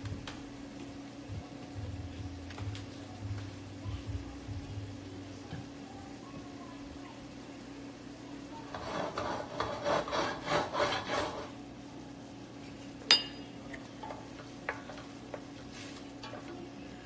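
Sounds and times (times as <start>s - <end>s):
rough scraping strokes: 8.7s - 11.5s
sharp metallic clink: 13.1s - 13.5s.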